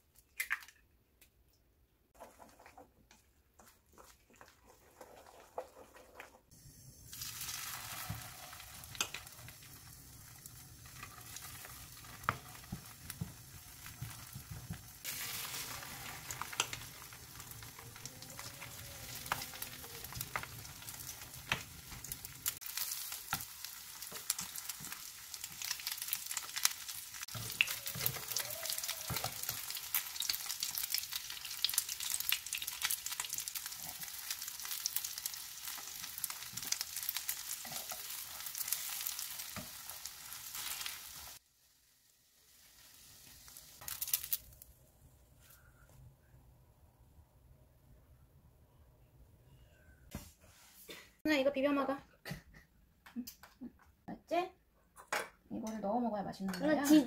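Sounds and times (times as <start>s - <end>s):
patties sizzling in oil: 3.7s - 44.8s.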